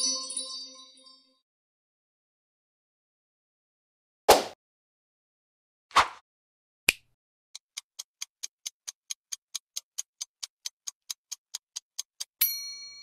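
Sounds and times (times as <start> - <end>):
countdown timer ticking: 7.6 - 13.0.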